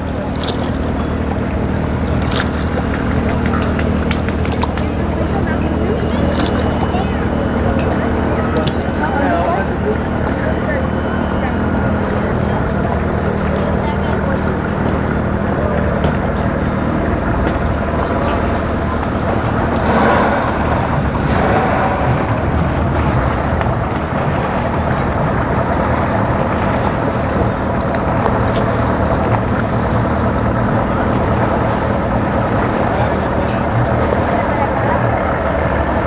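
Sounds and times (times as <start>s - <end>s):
outboard motor idling: 0.0s - 36.0s
wind buffeting microphone: 15.2s - 36.0s.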